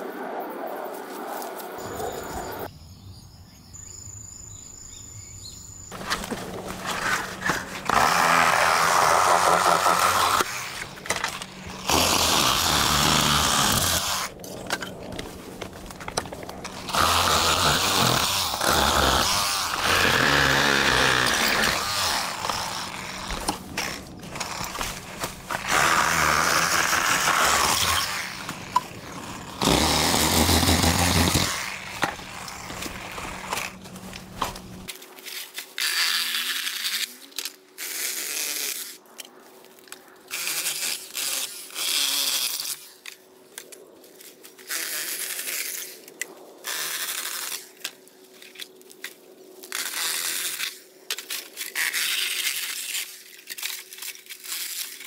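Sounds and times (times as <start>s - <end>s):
power saw cutting bamboo: 5.9s - 14.4s, 15.1s - 34.9s.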